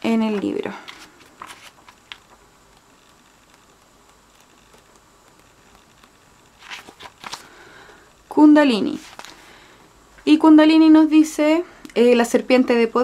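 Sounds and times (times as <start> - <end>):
paper pages rustling: 0.2 - 2.4, 6.6 - 7.7, 8.8 - 9.5.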